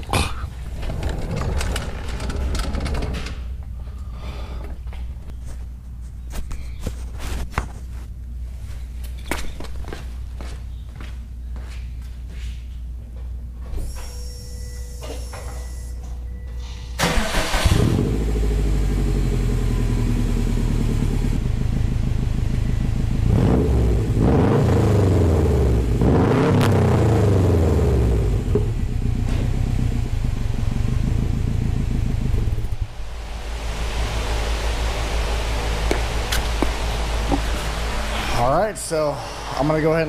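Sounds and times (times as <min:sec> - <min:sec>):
car engine cranking: 0:00.5 - 0:03.8, 0:17.0 - 0:19.0
car engine idling: 0:17.0 - 0:24.3, 0:27.2 - 0:38.2
car engine revving: 0:17.0 - 0:29.2.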